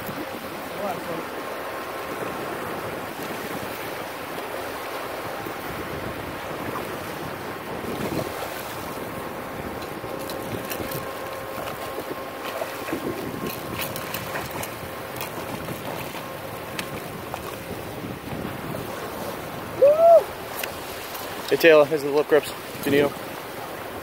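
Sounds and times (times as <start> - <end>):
wind buffeting microphone: 0.0 - 24.0
sea water splashing against rocks: 6.5 - 23.4
fish thrashing in water: 10.2 - 16.2.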